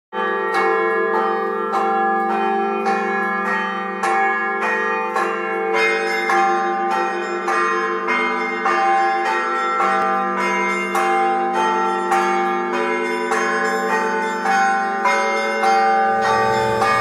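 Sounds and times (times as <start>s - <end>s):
bells ringing a peal: 0.2s - 17.0s
hum of lower bells: 0.2s - 17.0s.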